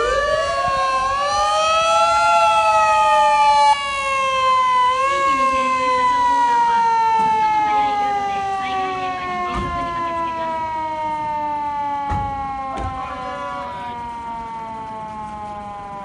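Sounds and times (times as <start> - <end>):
siren winding down: 0.0 - 16.0.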